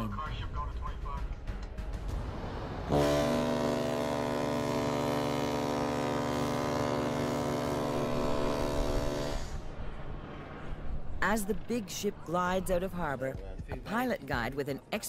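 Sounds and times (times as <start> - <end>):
deep ship horn blast: 2.3 - 10.5.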